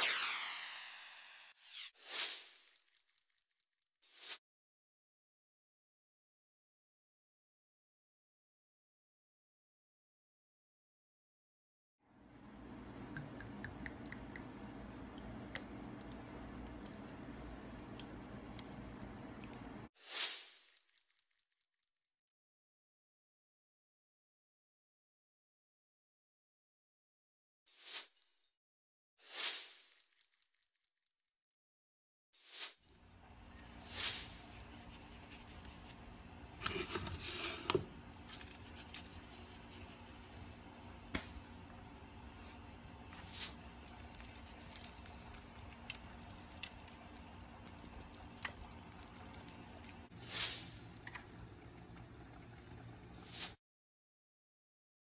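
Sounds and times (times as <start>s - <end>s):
low steady hum: 12.2s - 19.9s
rustling and scraping: 33.8s - 40.6s
sauce squishing and dripping: 43.8s - 50.1s.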